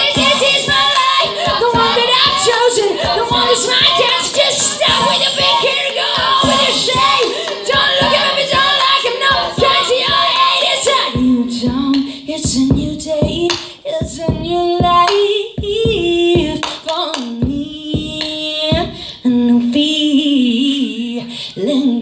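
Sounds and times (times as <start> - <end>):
sharp low thumps: 0.0 - 4.2, 4.8 - 8.7, 11.2 - 15.0
woman singing wordless notes: 0.0 - 22.0.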